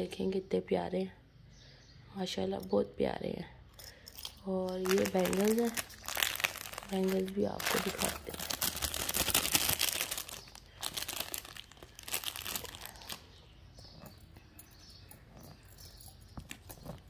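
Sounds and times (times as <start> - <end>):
plastic packet crinkling: 4.2 - 13.4.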